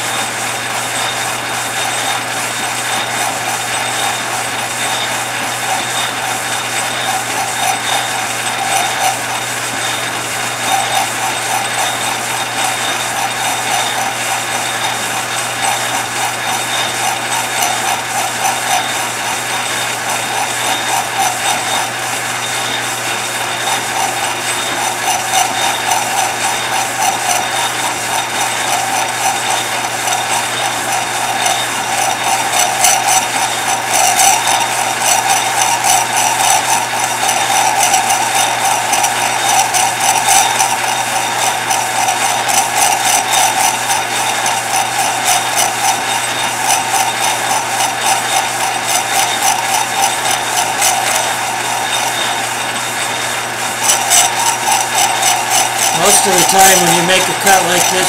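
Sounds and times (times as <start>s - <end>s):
metal lathe running: 0.0s - 58.0s
fast fine ticking: 53.8s - 58.0s.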